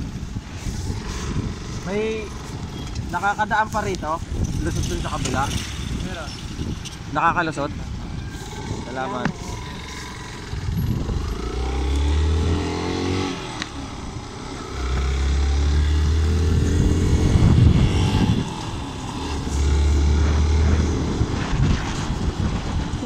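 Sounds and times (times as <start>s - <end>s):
heavy low rumble: 7.7s - 23.0s
motorcycle engine running: 8.3s - 23.0s.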